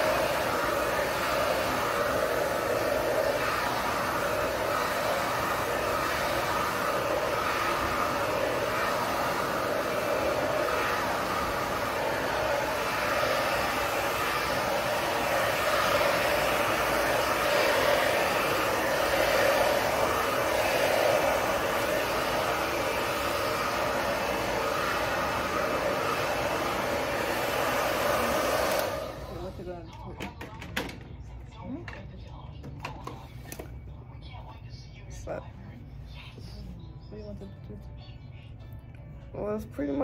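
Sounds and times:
hair dryer blowing: 0:00.0 - 0:30.9.

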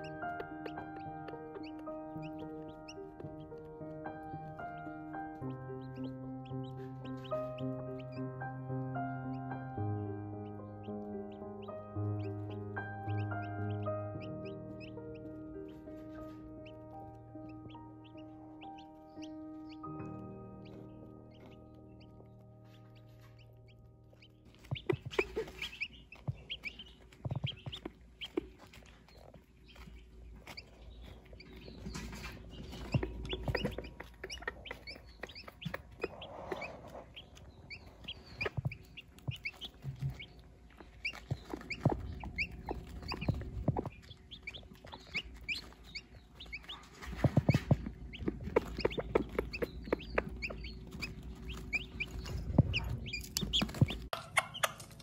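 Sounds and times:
chicks peeping: 0:00.0 - 0:55.0
hen clucking softly: 0:32.9 - 0:39.6, 0:41.0 - 0:52.0.

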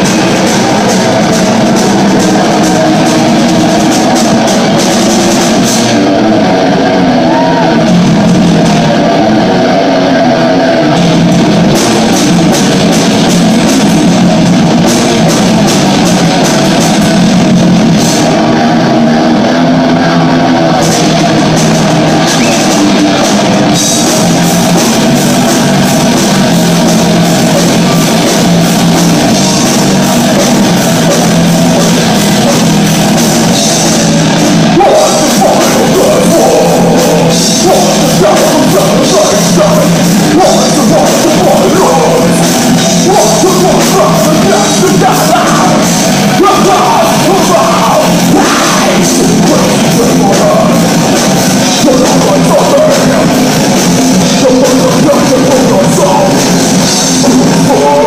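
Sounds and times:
bass guitar: 0:00.0 - 0:58.0
distorted electric guitars: 0:00.0 - 0:58.0
drum kit: 0:00.0 - 0:58.0
person singing: 0:18.3 - 0:58.0.

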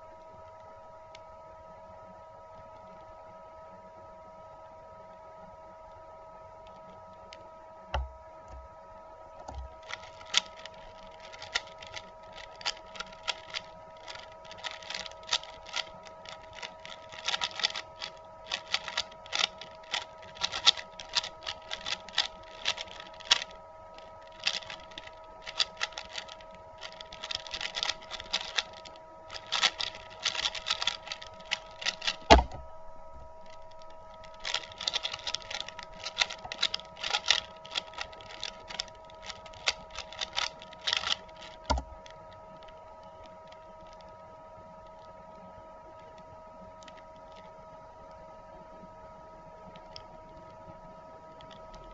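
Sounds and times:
puzzle cube clicking: 0:09.6 - 0:32.5, 0:33.5 - 0:42.1
heavy thump: 0:32.3 - 0:32.7.

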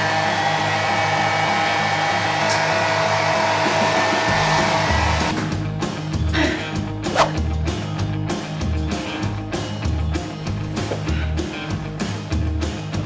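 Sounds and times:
hair dryer blowing: 0:00.0 - 0:05.3
background music with steady beat: 0:03.7 - 0:13.0.

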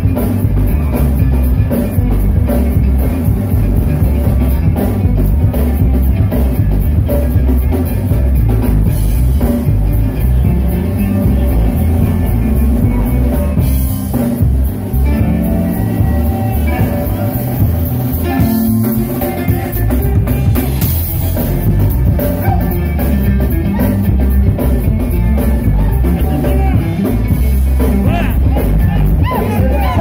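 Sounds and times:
live band playing: 0:00.0 - 0:30.0
person singing: 0:28.0 - 0:30.0.

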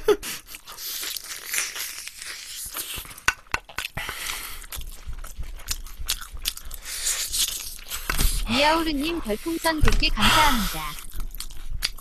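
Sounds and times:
chewing crunches: 0:00.5 - 0:08.4, 0:10.7 - 0:12.0.

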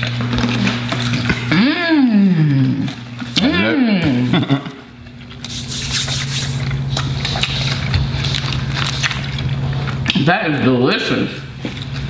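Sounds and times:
closed-mouth hum: 0:00.0 - 0:08.2.

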